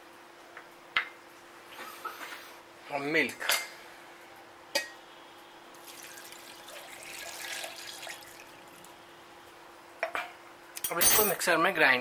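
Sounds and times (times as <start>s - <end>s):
milk pouring into steel jar: 5.8s - 8.5s.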